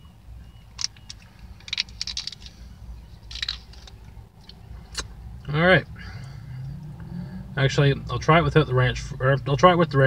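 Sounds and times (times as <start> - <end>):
packaging crinkling: 0.8 - 4.1.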